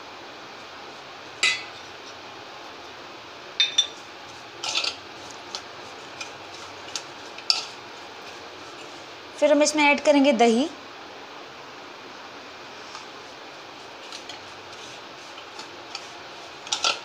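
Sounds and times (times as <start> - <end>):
spoon clinking against metal bowl: 3.6 - 4.0.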